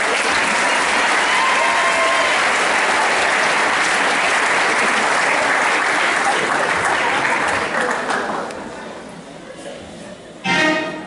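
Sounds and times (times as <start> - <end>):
large audience clapping: 0.0 - 8.7.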